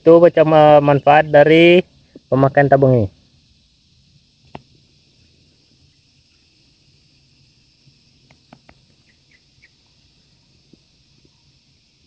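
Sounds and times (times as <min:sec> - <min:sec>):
steady high hiss: 0:00.0 - 0:12.0
sharp clicks: 0:08.2 - 0:09.4.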